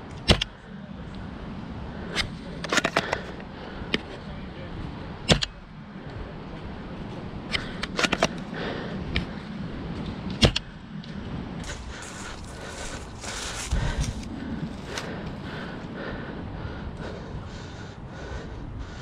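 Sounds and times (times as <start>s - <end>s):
airsoft rifle snapping: 2.1s - 3.3s, 7.5s - 8.4s
footsteps through dry leaves: 11.6s - 15.4s.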